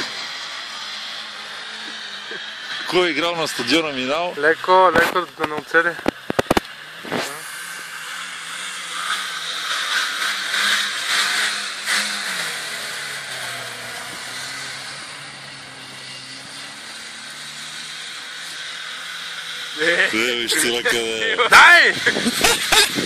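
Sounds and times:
suv engine revving hard: 0.0s - 23.0s
hiss of spraying snow: 7.0s - 23.0s.

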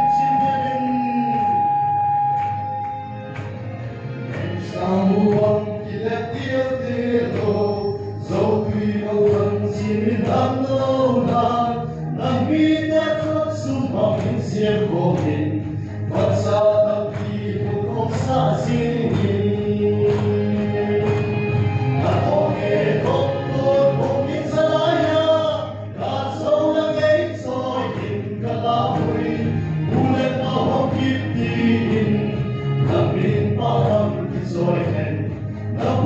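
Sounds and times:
group singing gospel song: 0.0s - 2.9s, 4.3s - 36.0s.

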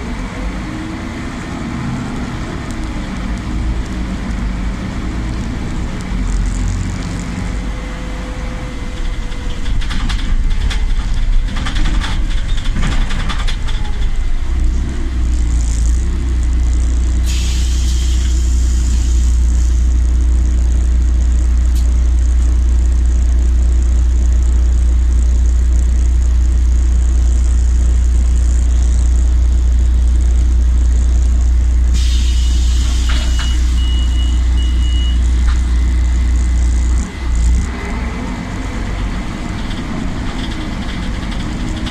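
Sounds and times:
bus engine drone: 0.0s - 41.9s
compressed air hissing: 17.2s - 19.9s, 31.9s - 33.4s.

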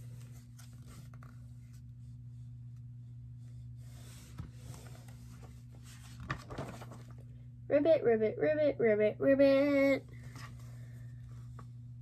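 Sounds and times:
book pages rustling: 0.0s - 2.9s, 3.6s - 7.3s
steady low hum: 0.0s - 12.0s.

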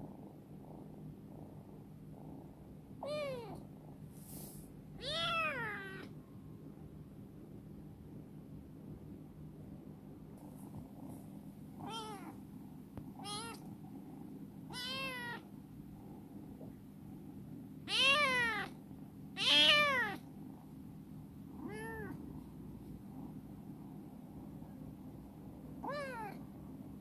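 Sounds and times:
faint low hum: 0.0s - 27.0s
kitten meowing: 3.0s - 3.6s, 5.0s - 6.1s, 11.8s - 12.4s, 13.2s - 13.6s, 14.7s - 15.4s, 17.9s - 18.7s, 19.4s - 20.2s, 21.6s - 22.2s, 25.8s - 26.4s.

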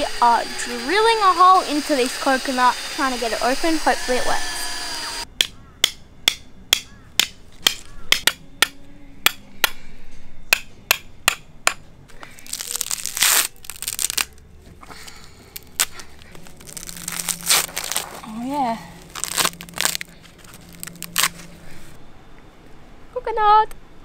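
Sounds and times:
rustling scrape: 15.8s - 22.0s.

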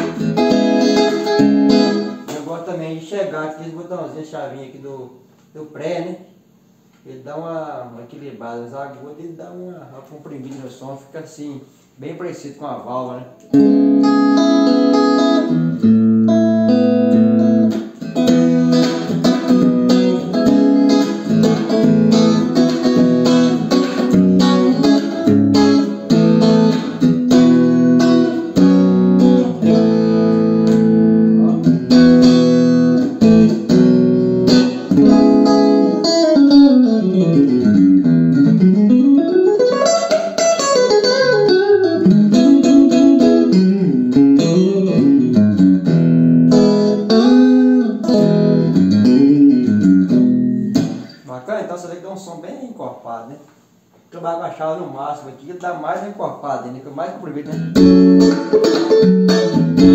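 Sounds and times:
electric guitar chords and notes: 0.0s - 2.4s, 13.4s - 51.3s, 57.5s - 59.9s.

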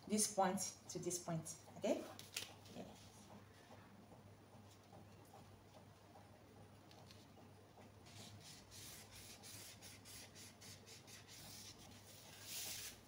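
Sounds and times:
marker scratching on paper: 8.0s - 13.0s.

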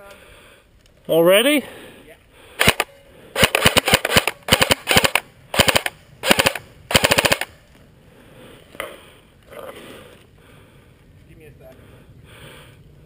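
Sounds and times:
airsoft rifle bursts of clicks: 2.6s - 7.6s.

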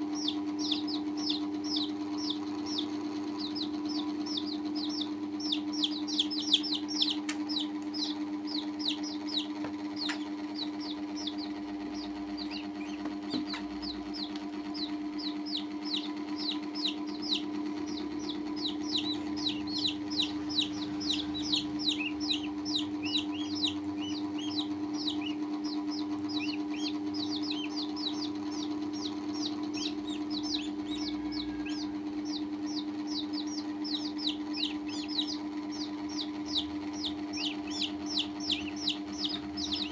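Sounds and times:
chicks and duckling peeping: 0.0s - 39.9s
steady low hum: 0.0s - 39.9s.

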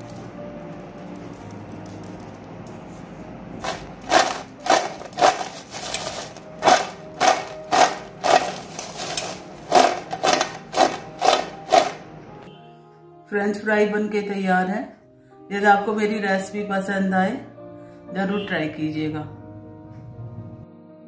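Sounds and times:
fries rattling in steel bowl: 3.6s - 12.0s.

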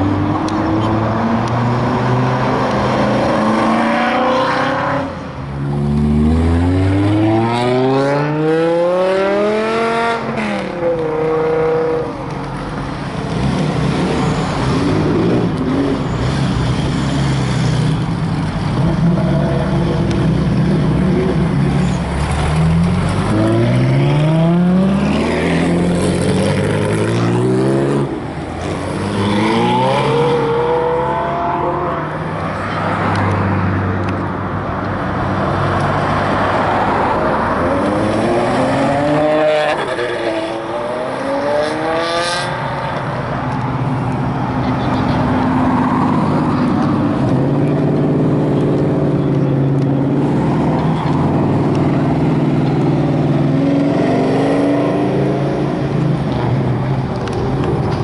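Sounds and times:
sports car engines accelerating: 0.0s - 58.0s.

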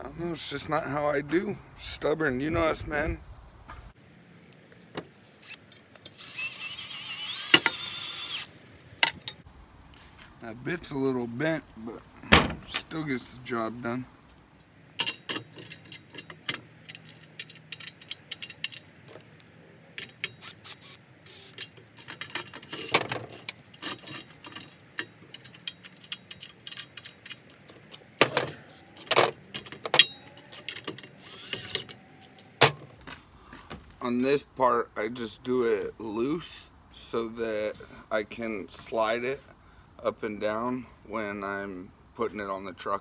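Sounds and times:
metal parts clinking and knocking: 15.0s - 32.0s.

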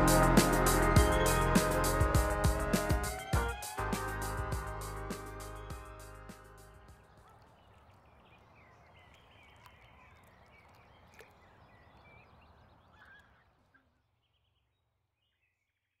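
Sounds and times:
bird calls: 6.7s - 16.0s.

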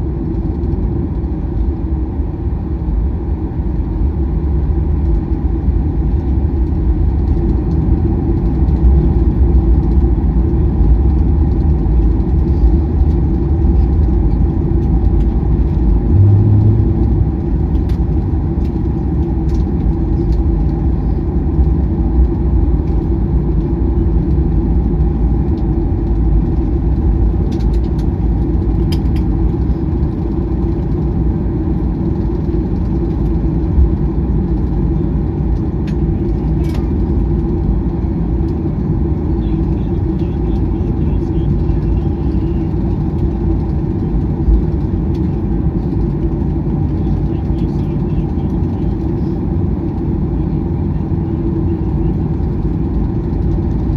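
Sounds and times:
jet engines idling in cabin: 0.0s - 53.9s
small clicks and rattles: 10.8s - 15.9s, 17.7s - 20.8s, 27.4s - 31.1s, 39.4s - 49.3s, 52.3s - 53.9s.

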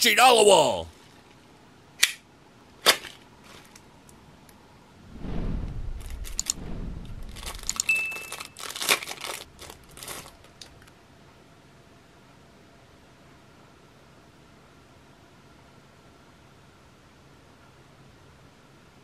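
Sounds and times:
plastic crinkling and rustling: 2.8s - 3.8s, 7.3s - 10.9s
scattered crackles: 5.1s - 10.9s.

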